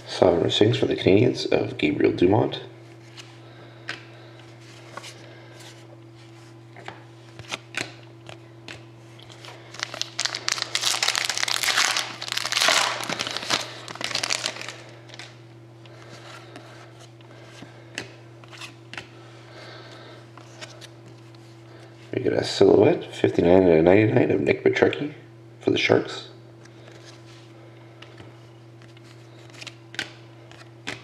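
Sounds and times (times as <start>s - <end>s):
steady low hum: 0.0s - 31.0s
foil wrapper crinkling: 9.3s - 15.4s.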